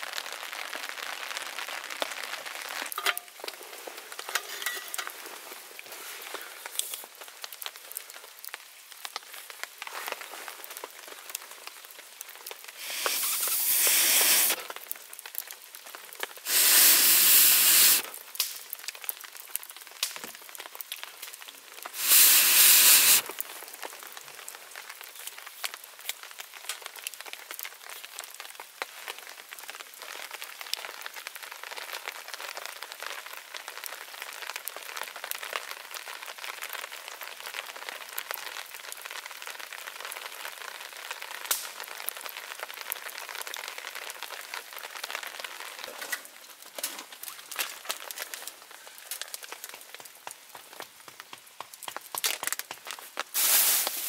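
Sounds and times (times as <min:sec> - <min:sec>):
rain pattering: 0:00.0 - 0:54.0
loud hissing rush: 0:12.8 - 0:14.6, 0:16.4 - 0:18.1, 0:22.0 - 0:23.3, 0:53.4 - 0:54.0.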